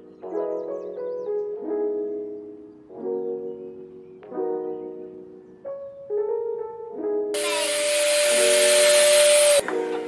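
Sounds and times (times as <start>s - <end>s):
soft piano chords: 0.0s - 7.3s.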